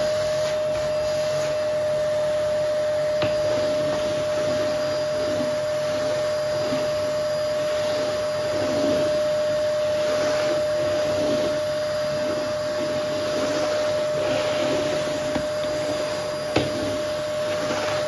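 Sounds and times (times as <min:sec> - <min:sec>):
vacuum cleaner whining: 0:00.0 - 0:18.0
floor head swishing on wooden floor: 0:07.7 - 0:18.0.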